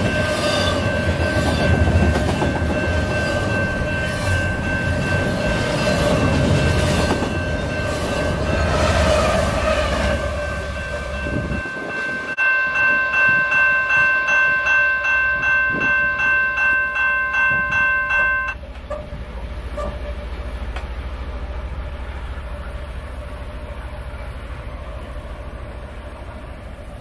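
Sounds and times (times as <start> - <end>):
level-crossing bell ringing: 0.0 - 8.8, 10.4 - 18.6
low train rumble: 0.0 - 27.0
train wheels rolling on rails: 0.0 - 27.0.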